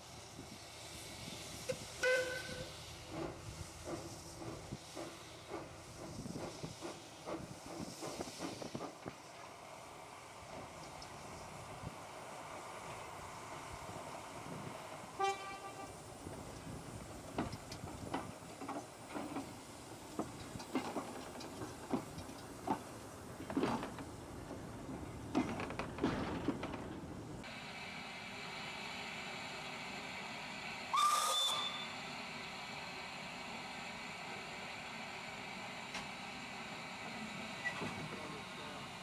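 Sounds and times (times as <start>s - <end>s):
steam locomotive chuffing: 0.0s - 24.0s, 27.4s - 39.0s
steam locomotive whistle: 2.0s - 2.8s, 15.2s - 16.0s, 30.9s - 32.0s.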